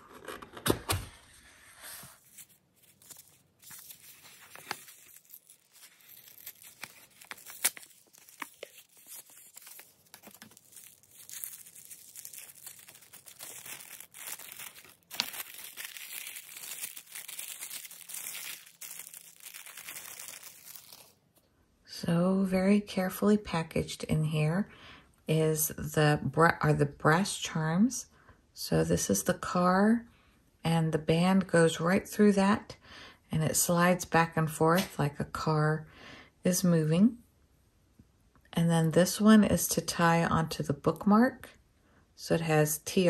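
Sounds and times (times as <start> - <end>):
tissue paper crinkling: 2.2 - 21.2.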